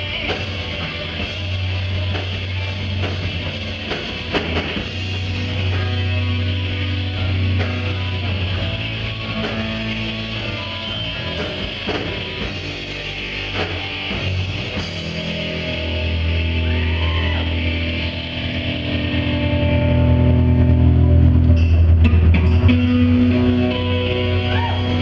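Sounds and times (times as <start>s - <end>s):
live rock band playing: 0.0s - 25.0s.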